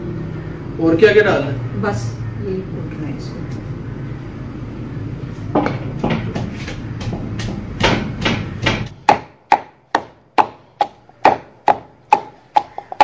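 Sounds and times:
pestle pounding in wooden mortar: 5.6s - 13.0s.

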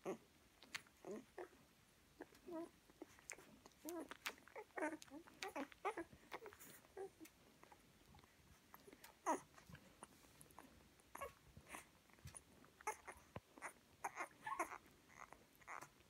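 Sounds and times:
puppies squeaking and whimpering: 2.2s - 7.3s, 8.7s - 16.0s.

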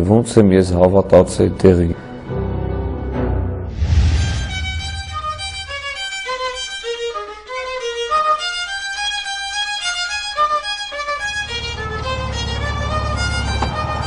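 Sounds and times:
low steady bass: 3.7s - 6.1s
solo violin melody: 4.6s - 14.0s.

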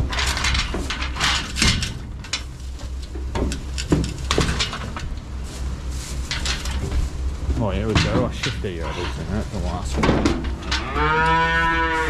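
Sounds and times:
irregular knocks and clatters: 0.0s - 5.3s, 6.2s - 9.2s
steady low hum: 0.0s - 12.0s.

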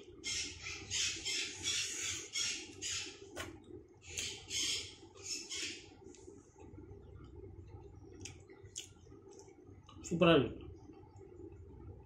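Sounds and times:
parrot squawking: 0.2s - 3.2s, 4.1s - 5.9s.

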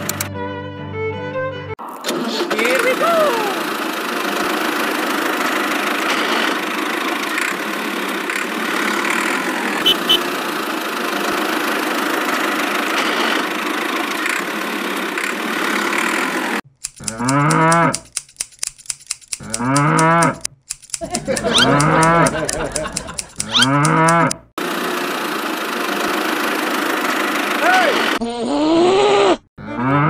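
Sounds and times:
engine running: 2.1s - 28.2s
cattle mooing: 17.1s - 18.0s, 19.4s - 20.4s, 21.4s - 22.4s, 23.4s - 24.4s, 29.6s - 30.0s.

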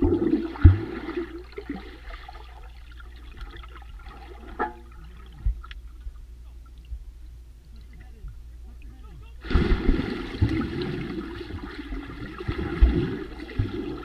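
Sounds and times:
muffled underwater rushing and bubbling: 0.0s - 8.8s, 9.4s - 14.0s
dull underwater thumps: 4.2s - 6.2s, 9.4s - 11.8s.

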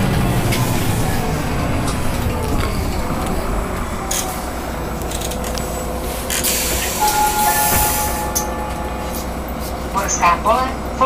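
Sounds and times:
bus drivetrain rumble: 0.0s - 11.0s
steady high tones: 6.8s - 10.2s.

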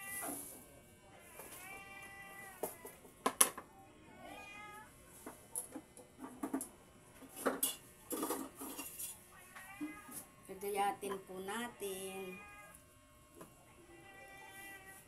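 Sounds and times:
cat meowing: 1.3s - 2.6s, 4.2s - 4.9s, 9.4s - 10.2s, 12.2s - 12.8s, 13.9s - 15.0s.

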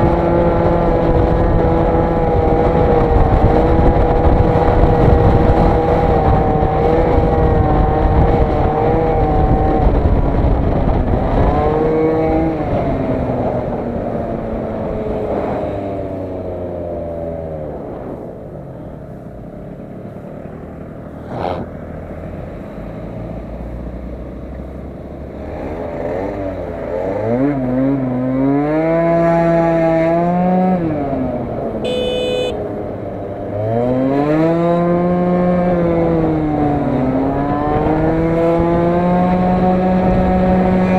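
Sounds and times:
wind rushing over microphone: 0.0s - 18.5s, 34.4s - 40.9s
scooter engine revving: 31.8s - 32.6s.

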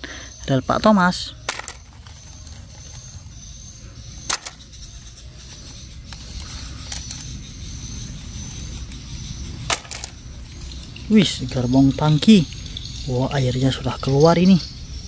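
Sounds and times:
plastic track pieces clicking: 1.5s - 3.1s, 4.3s - 4.6s, 6.1s - 7.3s, 9.7s - 10.2s.

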